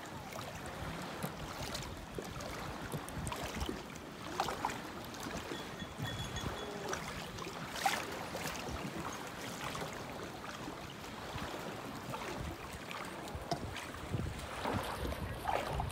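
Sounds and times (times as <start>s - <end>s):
small waves lapping: 0.0s - 15.9s
light splashes: 0.2s - 15.9s.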